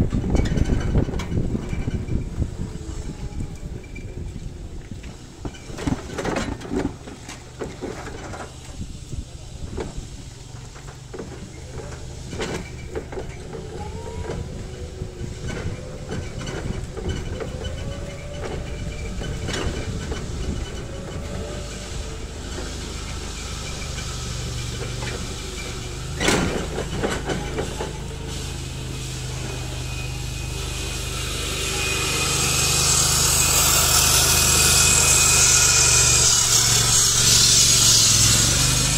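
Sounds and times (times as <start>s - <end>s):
forklift engine hum: 0.0s - 38.9s
rising hiss: 16.8s - 38.9s
clunks and knocks: 24.8s - 28.0s
whine wavering in pitch: 29.8s - 38.0s.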